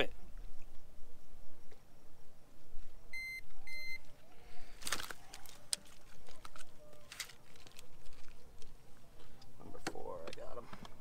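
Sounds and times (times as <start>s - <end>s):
short high beeps: 3.1s - 4.0s
clicks and rattles of handling: 4.8s - 11.0s.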